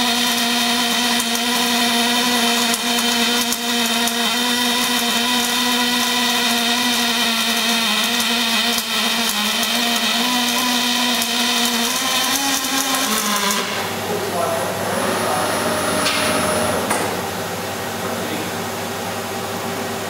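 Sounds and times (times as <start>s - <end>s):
welding arc hissing: 0.0s - 14.2s
steady hum: 13.6s - 20.0s.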